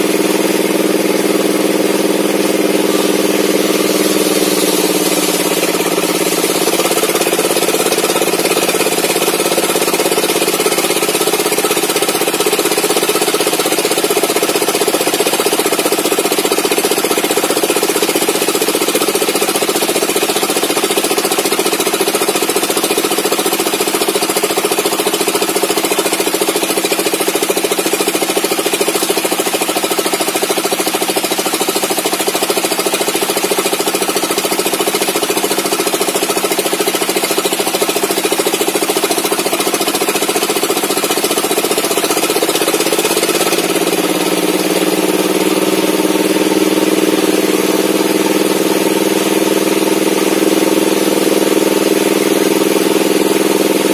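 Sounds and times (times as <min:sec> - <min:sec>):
engine-driven table saw cutting wood: 0:00.0 - 0:53.9.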